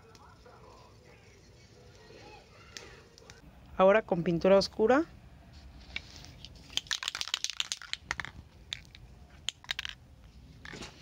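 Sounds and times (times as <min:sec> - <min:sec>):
sharp clicks and crinkles: 0:05.9 - 0:10.0.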